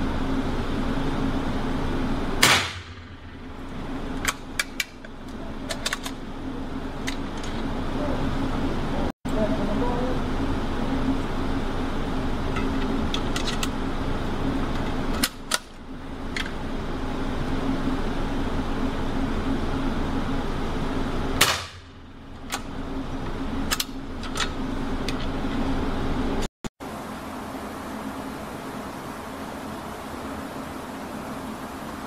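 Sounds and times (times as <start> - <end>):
rifle shots with echo: 2.4 - 3.1.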